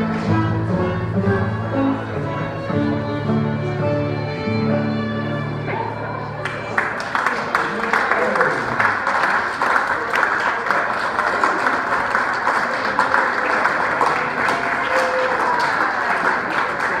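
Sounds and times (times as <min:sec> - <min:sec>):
crowd applauding: 0:05.7 - 0:17.0.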